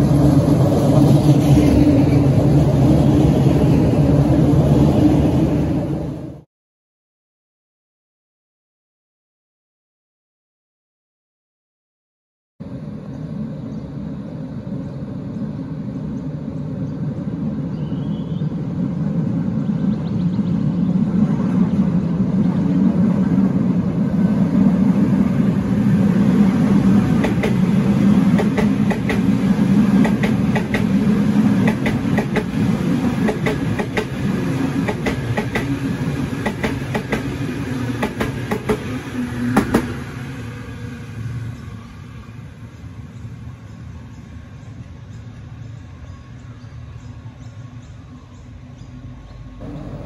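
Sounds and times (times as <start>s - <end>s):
electric train passing: 0.0s - 6.4s, 12.6s - 50.0s
train wheel clicks over rail joints: 27.2s - 31.0s, 31.6s - 32.6s, 33.2s - 34.2s, 34.8s - 35.8s, 36.4s - 37.4s, 38.0s - 39.0s, 39.6s - 40.0s.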